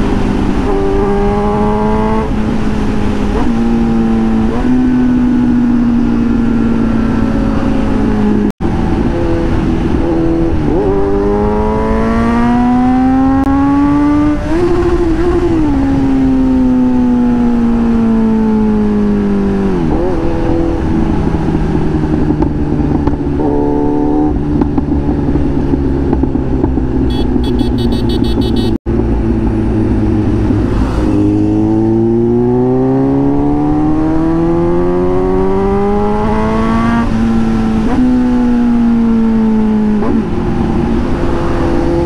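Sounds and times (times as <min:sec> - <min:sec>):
motorcycle engine revving: 0:00.0 - 0:42.0.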